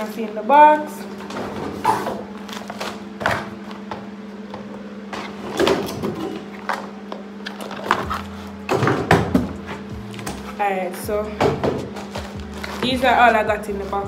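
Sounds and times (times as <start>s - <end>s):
steady low hum: 0.0s - 14.0s
cardboard boxes rustling: 11.8s - 14.0s.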